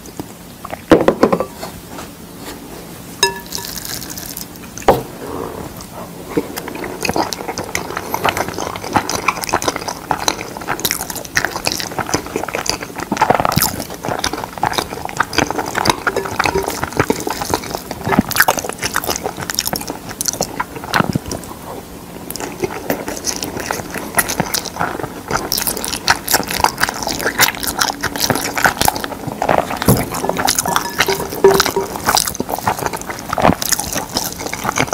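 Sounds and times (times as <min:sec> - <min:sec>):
spoon stirring rice in glass bowl: 0:03.2 - 0:04.0, 0:29.9 - 0:32.8
wet chewing and mouth smacks: 0:05.8 - 0:34.9.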